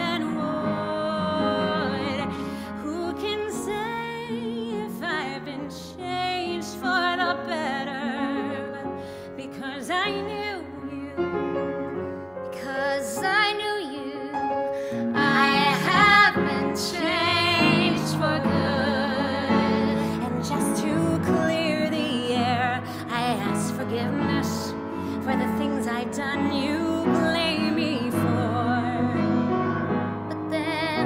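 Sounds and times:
piano accompaniment: 0:00.0 - 0:31.0
woman singing with vibrato: 0:15.2 - 0:31.0.

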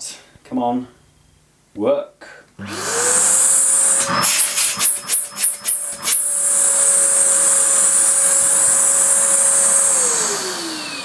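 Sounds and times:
vacuum cleaner running: 0:02.6 - 0:11.0.

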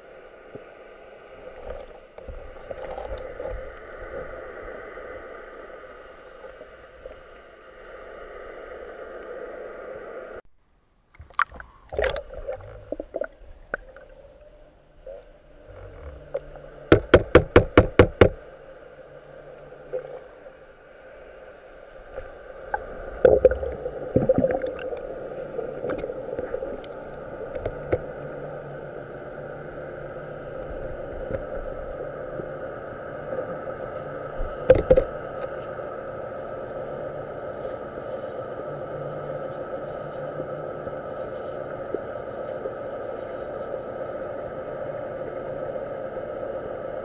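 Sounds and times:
underwater hum: 0:00.0 - 0:47.0
sharp knocks: 0:16.9 - 0:18.4.

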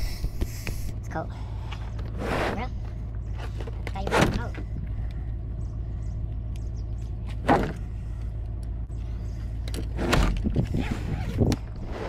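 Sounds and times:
car engine rumbling: 0:00.0 - 0:12.0.

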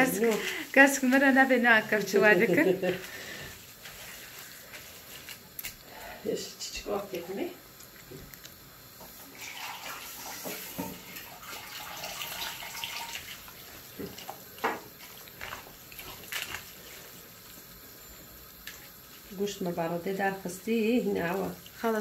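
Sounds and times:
water running from tap: 0:09.0 - 0:16.4.

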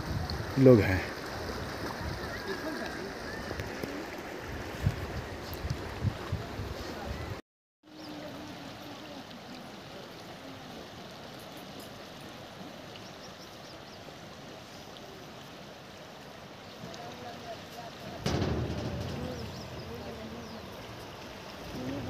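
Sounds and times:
wind buffeting microphone: 0:00.0 - 0:02.5, 0:04.4 - 0:07.4, 0:18.2 - 0:22.0
soft outdoor hiss: 0:07.9 - 0:22.0.

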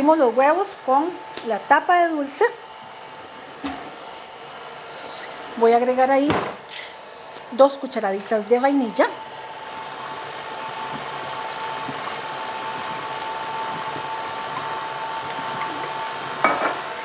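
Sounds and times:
stand mixer motor whining: 0:08.3 - 0:17.0.

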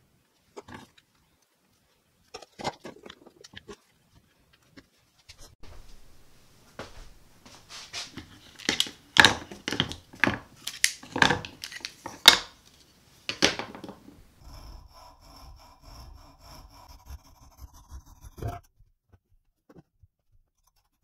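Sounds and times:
coping saw cutting wood: 0:14.4 - 0:18.7.

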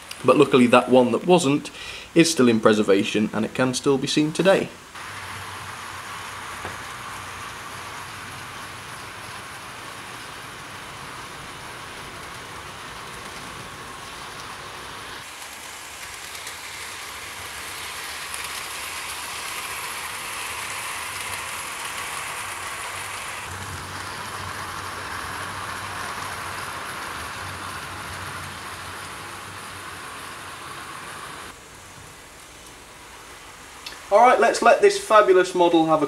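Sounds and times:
model train wheels rattling: 0:04.4 - 0:31.6
model train motor whir: 0:05.0 - 0:31.6.

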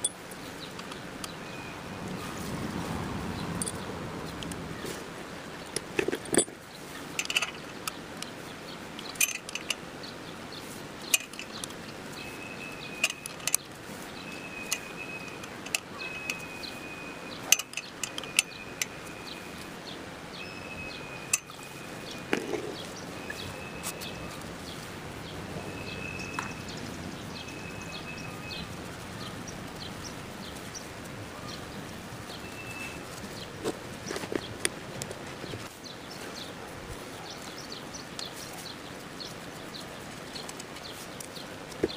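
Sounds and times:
metallic clinks of tools: 0:09.0 - 0:09.8, 0:21.3 - 0:21.6.

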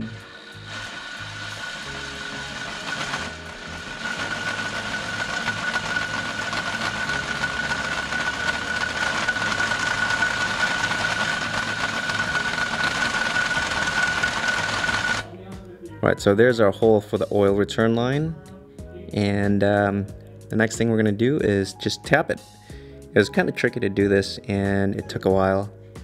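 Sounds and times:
electric drill whining: 0:00.0 - 0:15.3.

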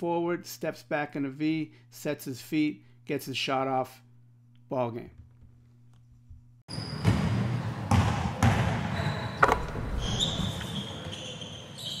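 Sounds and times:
basketball bouncing: 0:06.9 - 0:10.6.

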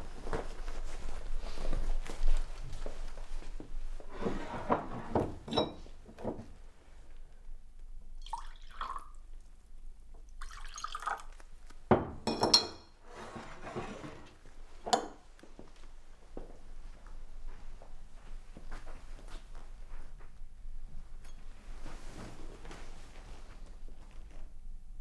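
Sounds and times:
glass clinks: 0:05.5 - 0:05.8, 0:12.3 - 0:12.9
liquor pouring into glass: 0:08.2 - 0:09.2, 0:10.4 - 0:11.4.

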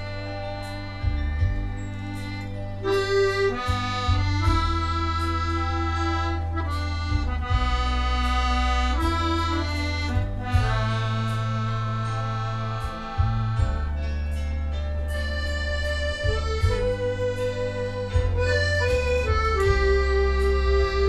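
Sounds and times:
accordion bass notes and chords: 0:00.0 - 0:21.0
piano accordion melody: 0:00.0 - 0:21.0.

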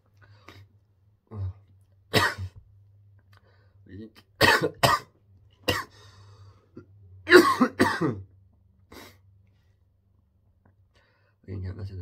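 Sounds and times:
man coughing: 0:02.1 - 0:02.6, 0:04.4 - 0:06.0, 0:07.3 - 0:08.3.

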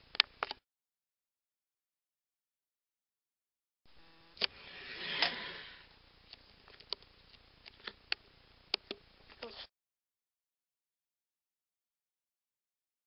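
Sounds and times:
scraping rush: 0:04.5 - 0:05.9.

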